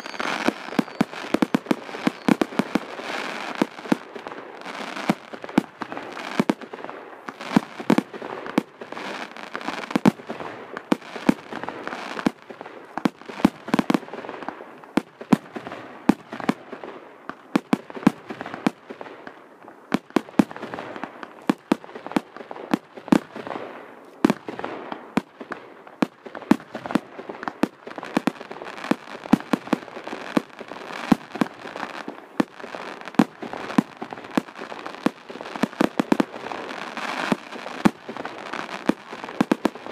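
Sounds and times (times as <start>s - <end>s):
fireworks crackling hiss: 0.0s - 16.6s, 26.3s - 39.9s
fireworks bangs and pops: 0.0s - 39.9s.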